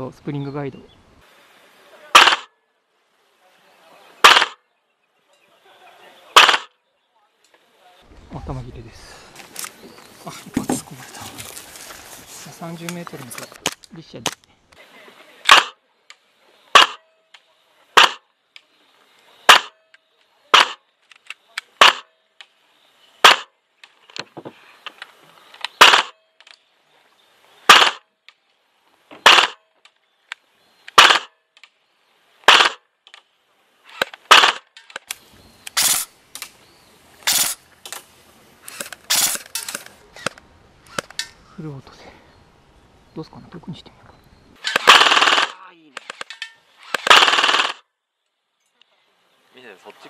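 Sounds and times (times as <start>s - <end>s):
airsoft gun shots: 2.1s - 2.5s, 4.2s - 4.6s, 6.4s - 6.7s, 15.5s - 15.8s, 16.7s - 17.0s, 18.0s - 18.2s, 19.5s - 19.8s, 20.5s - 20.8s, 21.8s - 22.1s, 23.2s - 23.5s, 25.8s - 26.2s, 27.7s - 28.0s, 29.2s - 29.6s, 30.9s - 31.3s, 32.4s - 32.8s, 34.0s - 34.7s, 37.2s - 37.6s, 44.6s - 47.8s.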